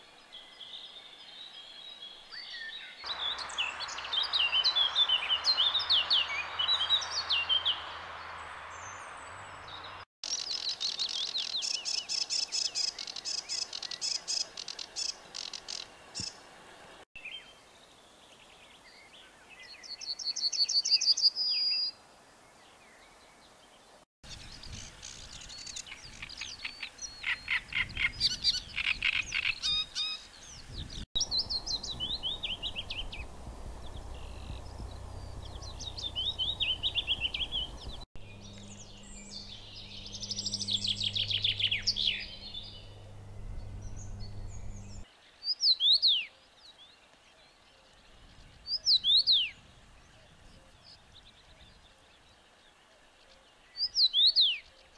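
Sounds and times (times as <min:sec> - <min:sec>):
songbird string of notes: 0:00.0 - 0:54.9
warbler soft descending cascade: 0:03.2 - 0:09.6.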